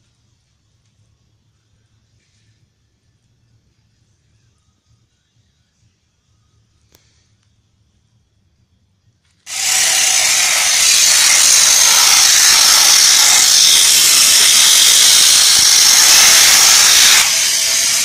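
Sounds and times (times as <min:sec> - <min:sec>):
pressure washer jet hissing: 0:09.5 - 0:18.0.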